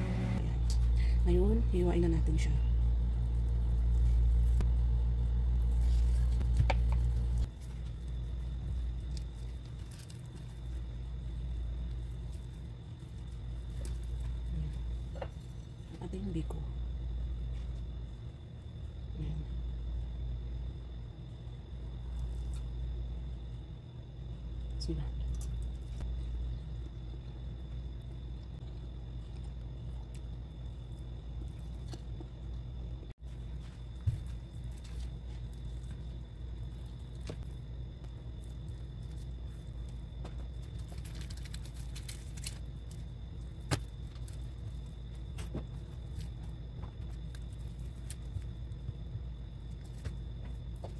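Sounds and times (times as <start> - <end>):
low mechanical hum: 0.0 - 50.9.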